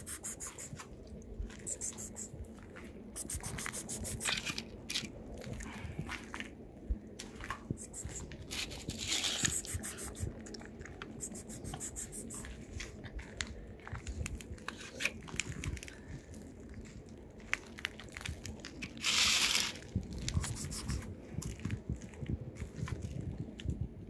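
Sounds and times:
cat crunching dry food: 8.5s - 12.4s.

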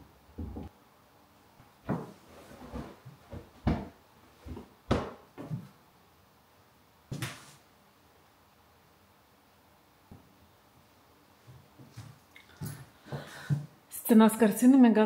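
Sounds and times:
picture frames knocking on wall: 4.9s - 5.7s.

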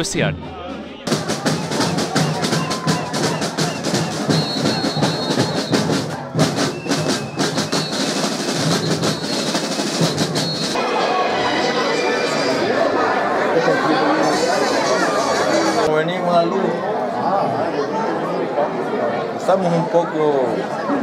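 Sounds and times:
fast drumming: 1.1s - 10.8s.

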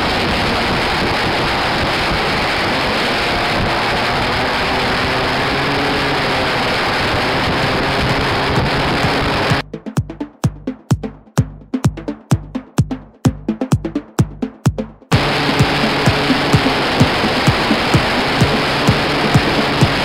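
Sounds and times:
wind rush on microphone: 0.0s - 9.6s
scooter engine running: 3.1s - 9.6s, 15.1s - 20.0s.

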